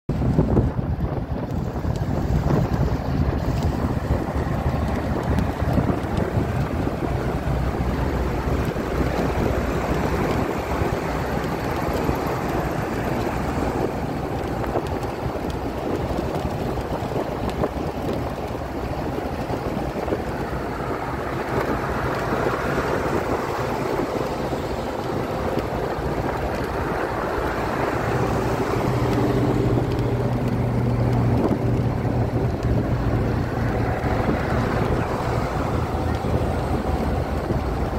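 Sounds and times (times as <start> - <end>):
wind and road noise: 0.0 - 37.9
car engine hum: 0.1 - 37.9.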